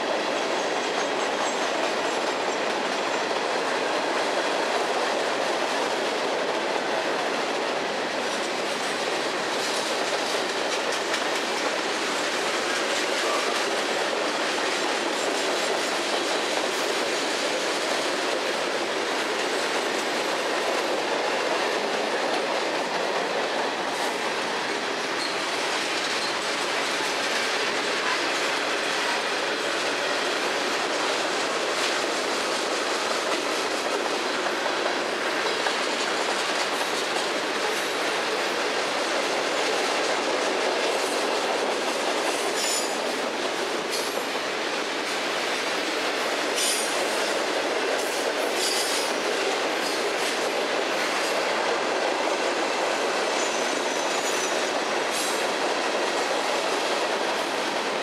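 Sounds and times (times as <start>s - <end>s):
train wheels rushing on rail: 0.0s - 58.0s
wheels clicking over rail joints: 0.0s - 58.0s.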